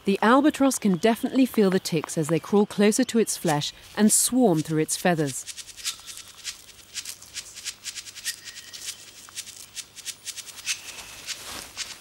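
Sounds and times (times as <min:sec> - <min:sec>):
dry clicking crackling rustles: 0:04.3 - 0:12.0.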